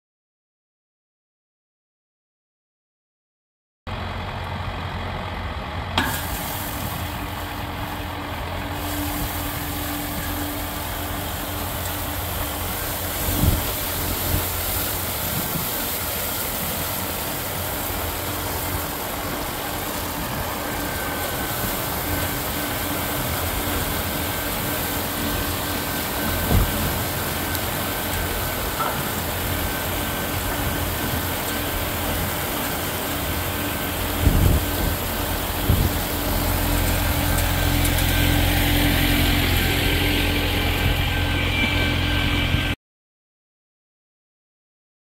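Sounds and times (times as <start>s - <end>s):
tractor diesel engine idling: 3.9s - 42.8s
rotary broom sweeping gravel: 6.0s - 41.3s.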